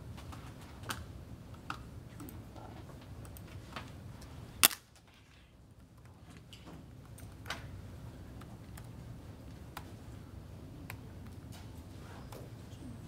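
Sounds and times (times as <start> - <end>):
low room hum: 0.0 - 13.0
faint clicks and taps: 8.3 - 10.0.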